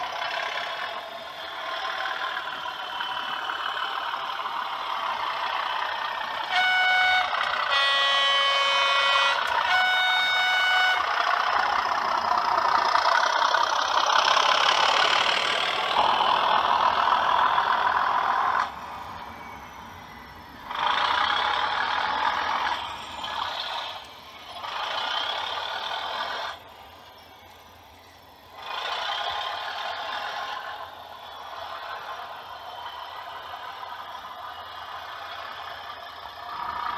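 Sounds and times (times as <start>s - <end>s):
model diesel engine sound: 0.0s - 36.9s
model locomotive horn blasts: 6.3s - 11.6s.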